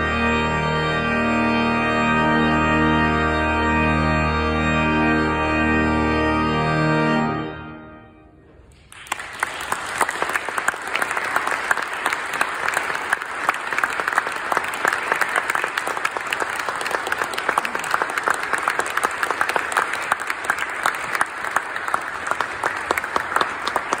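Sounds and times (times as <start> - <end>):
audience applauding: 8.7 - 24.0.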